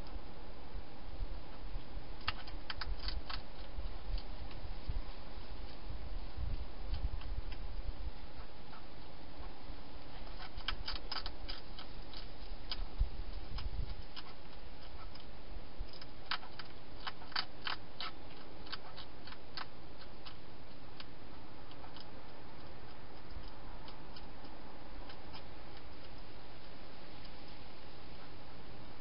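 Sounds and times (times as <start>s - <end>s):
steady hiss: 0.0s - 29.0s
hedgehog crunching dry food: 2.2s - 4.6s, 10.1s - 27.4s.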